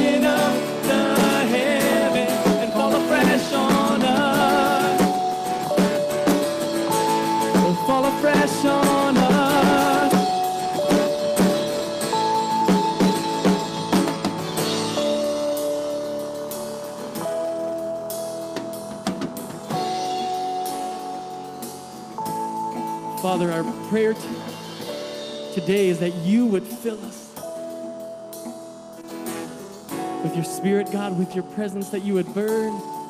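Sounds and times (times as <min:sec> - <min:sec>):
person singing: 0:00.0 - 0:05.9, 0:07.5 - 0:11.1, 0:30.1 - 0:33.0
acoustic guitar: 0:00.0 - 0:33.0
drums: 0:00.0 - 0:33.0
keyboard long held notes: 0:00.0 - 0:33.0.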